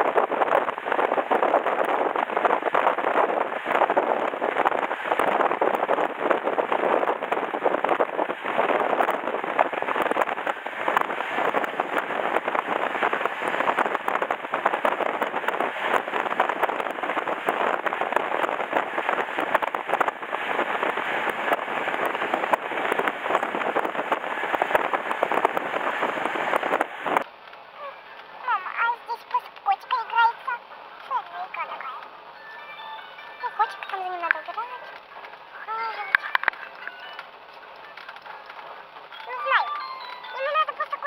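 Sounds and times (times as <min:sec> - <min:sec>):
train wheels rattling on rails: 0:00.0 - 0:27.2
rushing air: 0:00.0 - 0:27.3.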